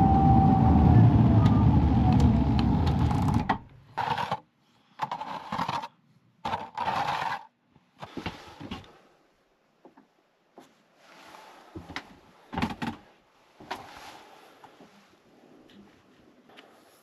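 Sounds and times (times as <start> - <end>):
loud low rumble: 0.0 - 3.5
plastic shovel scraping snow: 6.5 - 7.5.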